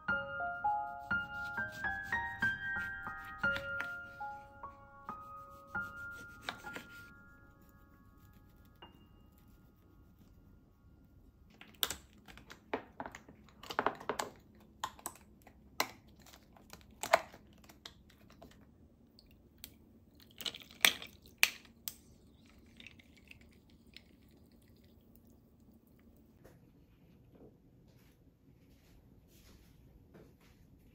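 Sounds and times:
tea poured over ice: 0:20.1 - 0:25.8.

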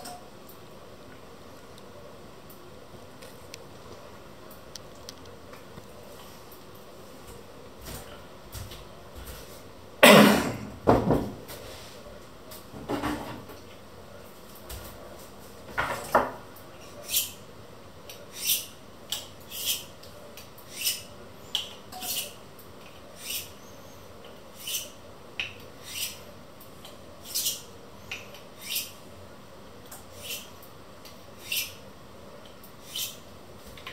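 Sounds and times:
knife scraping on honing rod: 0:22.0 - 0:22.4.

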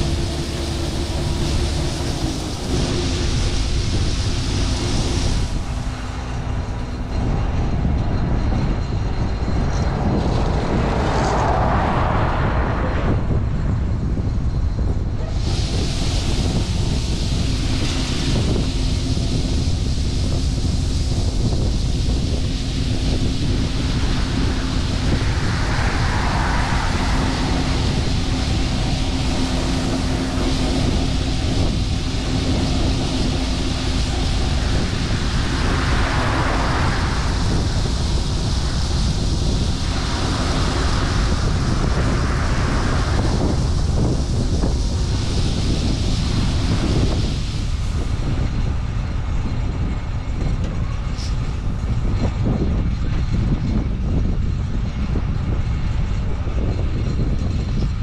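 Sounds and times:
grain pouring from auger: 0:00.0 - 0:06.4
diesel engine rumble: 0:00.0 - 0:58.0
steady hum: 0:00.0 - 0:58.0.

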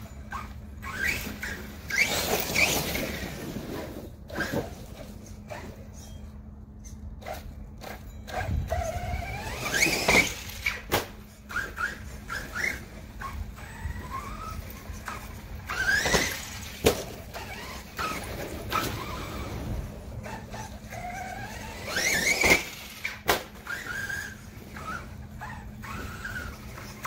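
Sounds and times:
electric motor whining: 0:00.0 - 0:27.0
toy truck hitting ground: 0:07.3 - 0:12.8, 0:15.0 - 0:19.5, 0:20.5 - 0:24.3.

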